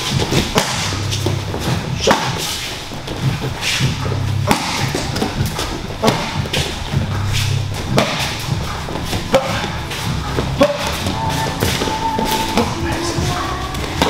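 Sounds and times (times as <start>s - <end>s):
strikes thudding on pads: 0.0s - 2.4s, 3.2s - 7.1s, 7.8s - 8.7s
background music: 0.0s - 14.0s.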